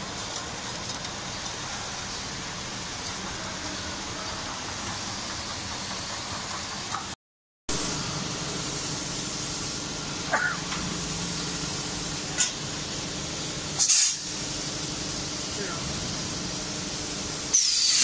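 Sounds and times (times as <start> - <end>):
brief sharp hiss: 13.8 - 14.5, 17.5 - 18.0.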